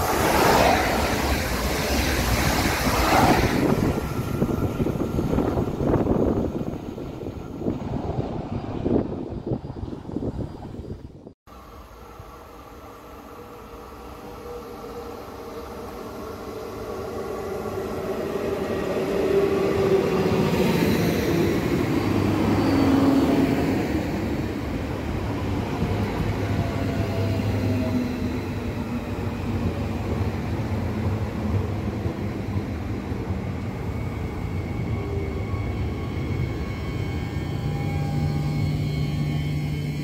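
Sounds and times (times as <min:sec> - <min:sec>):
wheels rumbling on rail: 0:00.0 - 0:11.7
electric train passing: 0:00.0 - 0:40.0.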